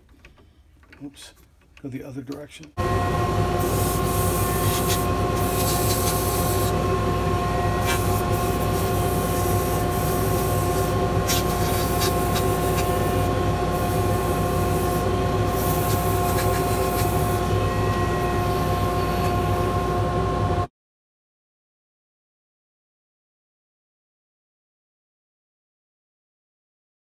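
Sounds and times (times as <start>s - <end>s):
lathe motor whining: 2.8s - 20.7s
sandpaper hissing on wood: 3.6s - 6.8s, 7.8s - 17.5s.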